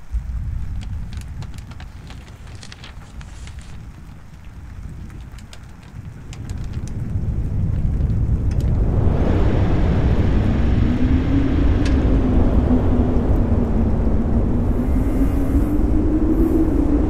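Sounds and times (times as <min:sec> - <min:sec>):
low rumbling wind ambience: 0:00.0 - 0:17.0
wavering droning hum: 0:08.3 - 0:17.0.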